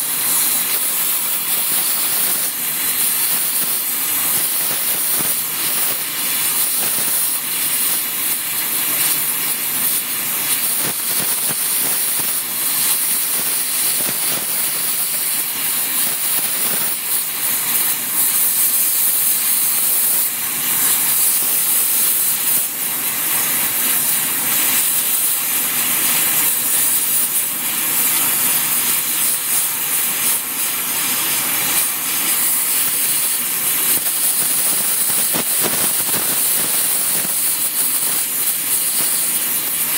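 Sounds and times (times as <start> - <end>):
torch flame hissing: 0.0 - 39.9.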